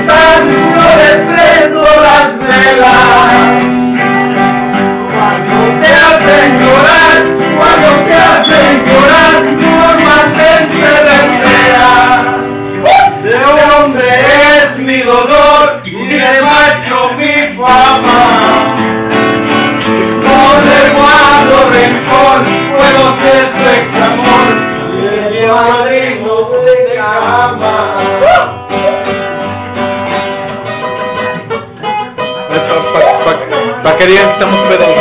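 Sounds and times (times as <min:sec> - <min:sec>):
men singing loudly: 0:00.0 - 0:03.8, 0:05.0 - 0:18.9, 0:19.8 - 0:28.9
acoustic guitar: 0:00.0 - 0:35.0.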